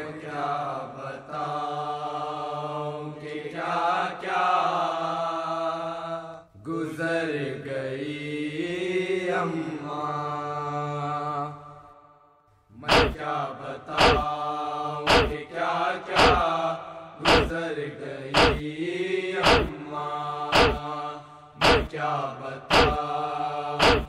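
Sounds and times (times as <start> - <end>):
steady low drone: 18.4 - 18.6.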